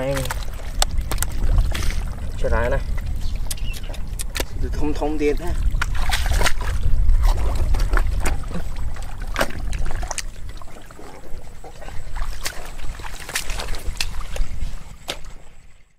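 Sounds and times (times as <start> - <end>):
steady low rumble: 0.0 - 15.9
water and mud sloshing: 0.0 - 15.9.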